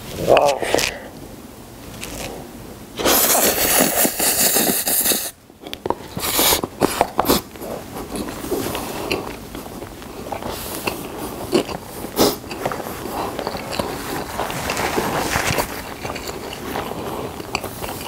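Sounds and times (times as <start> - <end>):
person slurping noodles: 3.0 - 5.4, 6.1 - 18.0
chewing noodles: 6.0 - 18.0.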